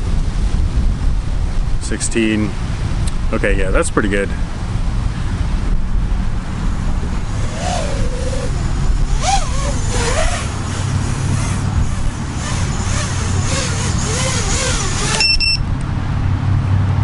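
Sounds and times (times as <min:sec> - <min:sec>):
prop wash and wind rush: 0:00.0 - 0:17.0
drone motor whine: 0:06.6 - 0:15.8.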